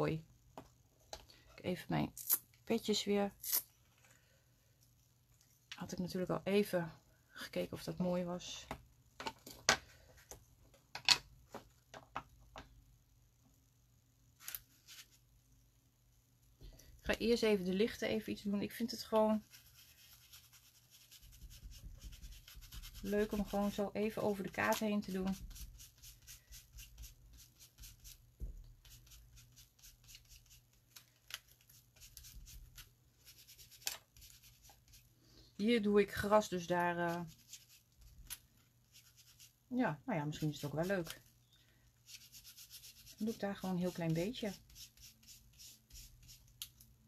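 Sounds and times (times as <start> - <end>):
scratchy strokes on paper: 19.4 - 24.4, 25.0 - 28.2, 28.8 - 30.7, 31.6 - 35.1, 36.8 - 38.0, 38.9 - 39.6, 40.2 - 41.2, 42.0 - 46.4.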